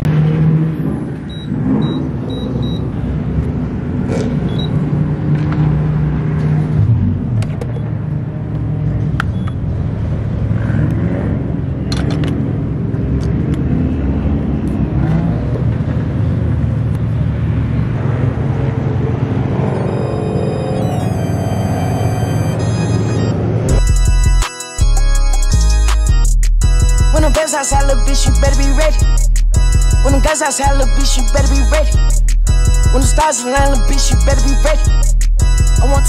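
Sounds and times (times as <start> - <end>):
keypad beeps: 1.3 - 2.9, 4.5 - 4.8, 9.3 - 9.6, 19.6 - 23.4.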